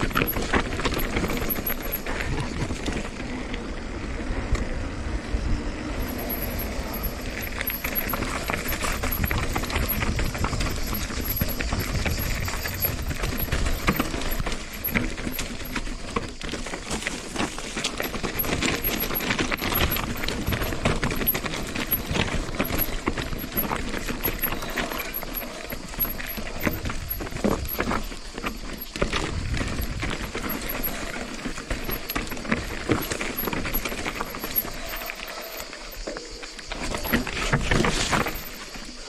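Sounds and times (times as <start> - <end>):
bike rattling over rocks: 0.0 - 39.0
wind rumbling on microphone: 0.0 - 39.0.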